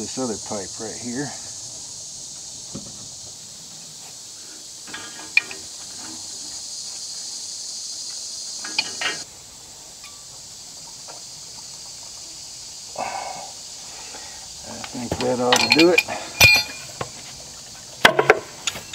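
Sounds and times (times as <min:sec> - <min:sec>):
insects buzzing: 0:00.0 - 0:18.9
pipe wrench clinking on metal: 0:15.2 - 0:17.0.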